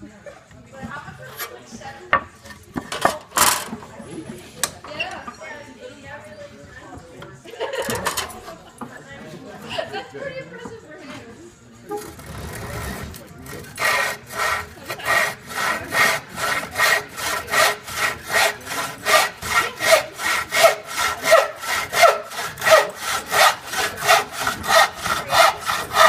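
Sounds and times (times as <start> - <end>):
hand saw cutting wood: 11.9 - 26.0.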